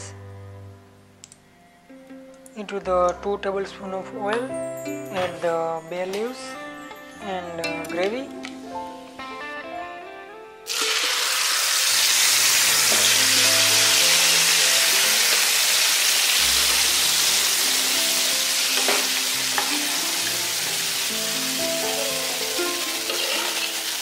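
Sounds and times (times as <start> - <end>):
paste sizzling in hot oil: 10.7 - 24.0.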